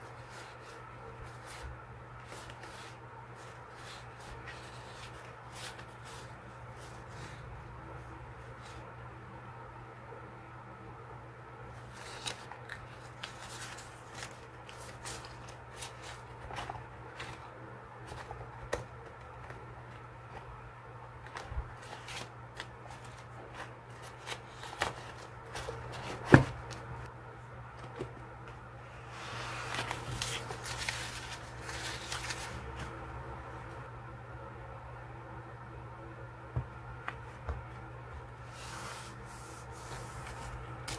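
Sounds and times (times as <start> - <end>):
paper rustling and flicking: 11.8 - 20.0, 29.4 - 33.0, 38.5 - 40.9.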